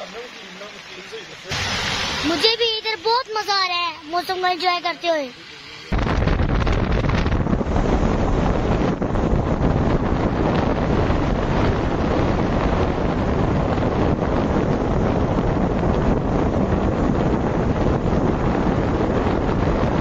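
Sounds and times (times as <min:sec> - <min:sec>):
wind buffeting microphone: 0:05.8 - 0:20.0.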